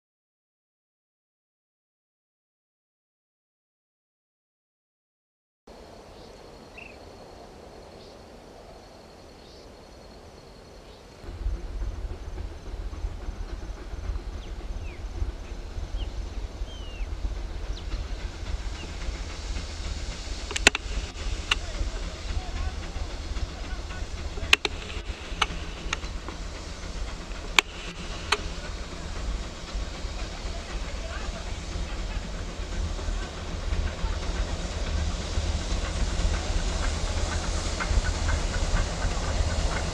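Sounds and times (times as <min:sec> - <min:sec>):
steam locomotive rumbling: 0:05.7 - 0:39.9
sharp clicks: 0:20.5 - 0:21.6, 0:24.4 - 0:26.1, 0:27.5 - 0:28.6.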